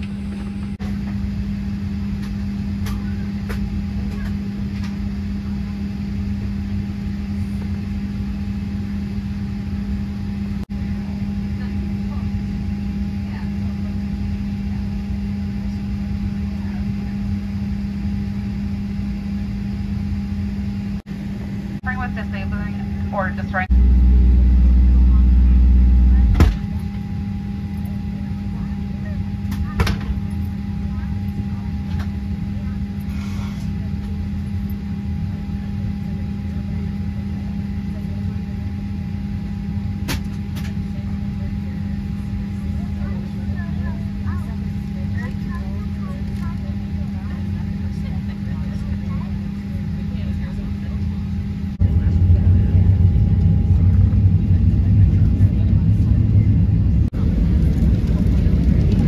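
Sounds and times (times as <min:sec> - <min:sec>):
cabin ventilation hum: 0:00.0 - 0:59.0
steady thin whine: 0:19.3 - 0:33.9.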